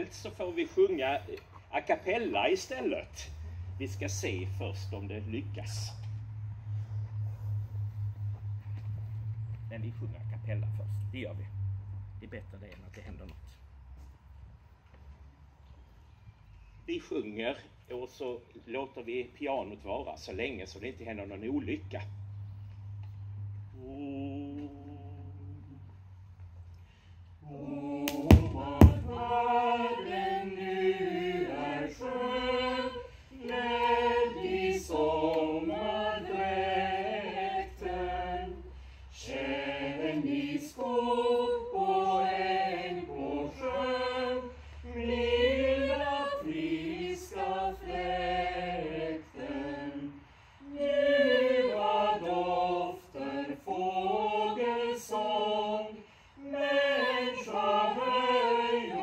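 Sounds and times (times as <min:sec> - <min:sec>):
choir singing unaccompanied: 0:23.7 - 0:25.9, 0:27.4 - 0:59.0
sharp knocks: 0:28.1 - 0:29.2.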